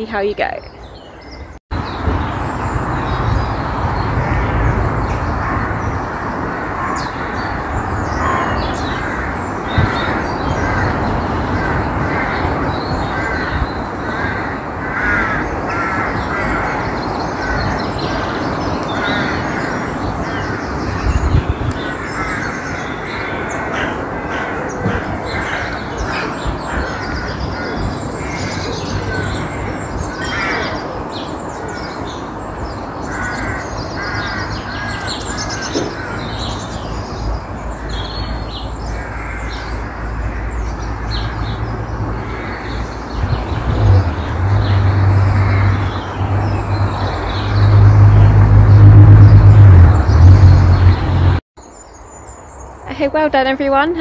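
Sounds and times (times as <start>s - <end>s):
small songbirds chirping: 0.0s - 14.4s, 15.4s - 53.2s
crows cawing: 4.2s - 20.9s, 21.7s - 37.1s, 37.7s - 43.5s, 44.2s - 46.1s.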